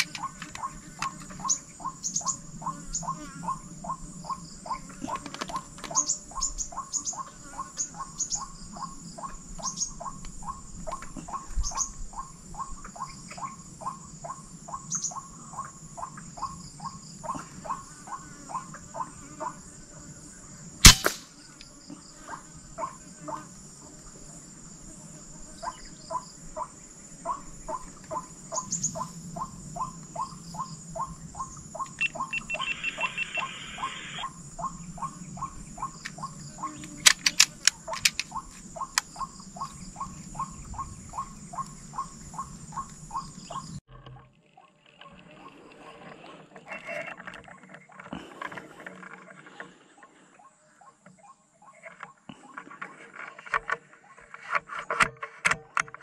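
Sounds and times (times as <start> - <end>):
sharp clicks: 0.0 - 1.2, 20.9 - 21.2, 36.8 - 39.1
high-pitched insect buzz: 0.0 - 10.1, 13.8 - 43.8
sharp crack: 20.8 - 21.3, 37.0 - 38.4
short repeated calls: 32.0 - 34.3.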